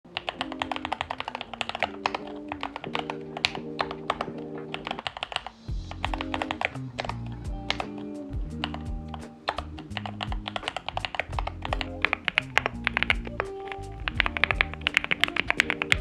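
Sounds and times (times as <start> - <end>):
background music: 0.1 - 16.0
keyboard key clacks: 0.1 - 16.0
deep bass: 5.7 - 7.8, 8.4 - 14.9.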